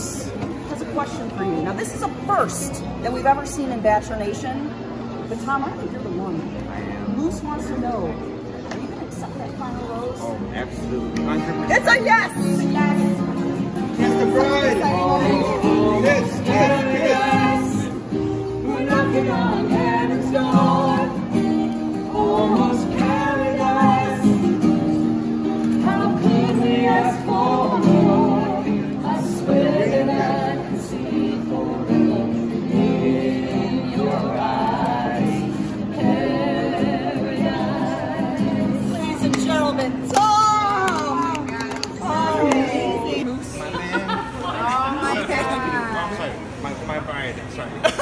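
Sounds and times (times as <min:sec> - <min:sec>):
strummed acoustic guitar: 0:10.8 - 0:40.3
group singing together: 0:11.7 - 0:40.1, 0:41.9 - 0:43.3.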